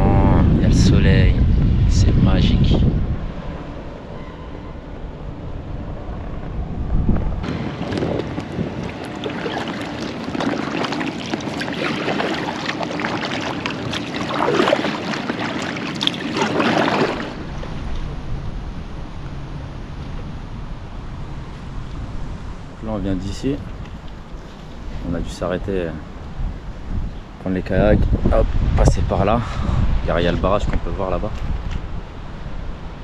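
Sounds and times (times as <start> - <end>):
wind on microphone: 0.0 - 33.0
river water splashing: 7.4 - 25.2.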